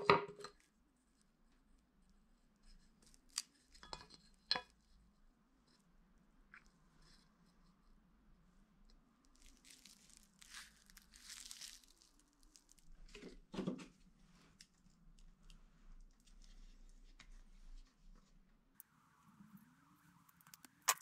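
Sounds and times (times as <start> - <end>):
plastic film crinkling: 9.3 - 13.2.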